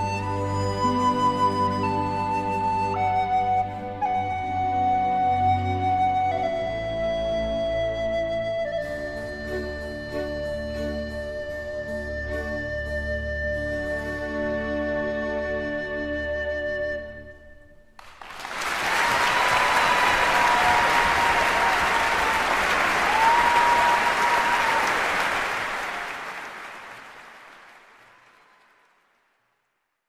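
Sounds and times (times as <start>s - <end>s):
long whistles: 0.0s - 10.9s, 18.6s - 27.0s
soft flute-like music: 0.0s - 18.0s
crowd applauding and cheering: 18.0s - 29.4s.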